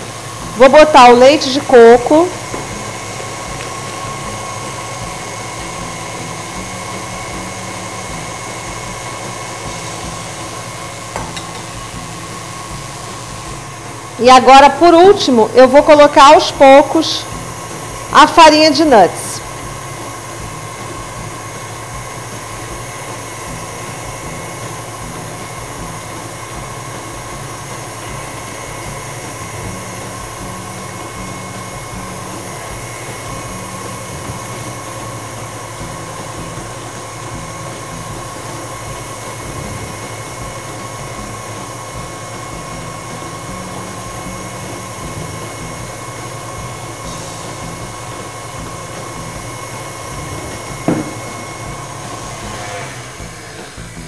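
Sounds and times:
stand mixer motor humming: 0.0 - 54.0.

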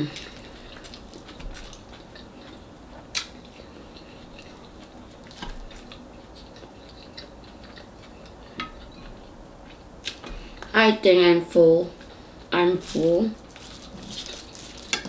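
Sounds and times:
quiet chewing: 0.1 - 10.7.

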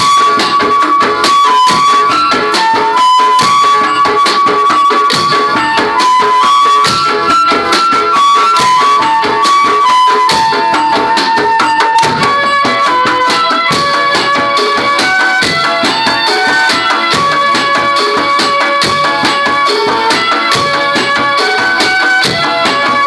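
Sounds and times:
held melody notes: 0.0 - 23.0
rapid percussion tubes and drums: 0.0 - 23.0.

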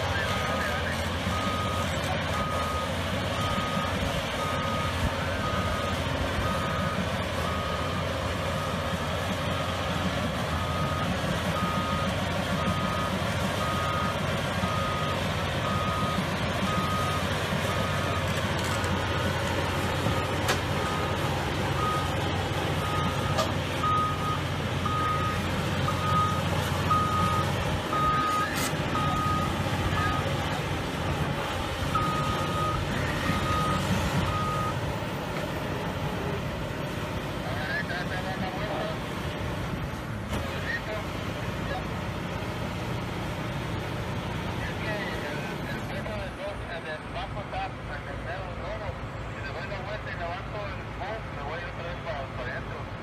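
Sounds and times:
excavator travel alarm beeping: 0.0 - 31.2, 31.8 - 35.2
diesel engine running: 0.0 - 53.0.

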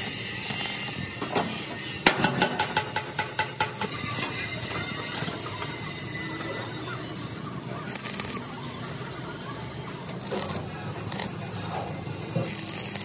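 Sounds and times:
arc welding crackling: 0.0 - 13.0
hammer strikes on steel: 2.0 - 4.2.

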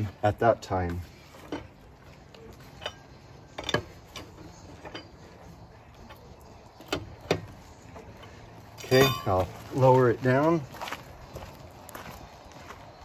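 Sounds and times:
lug wrench metal clicks: 2.5 - 5.4.

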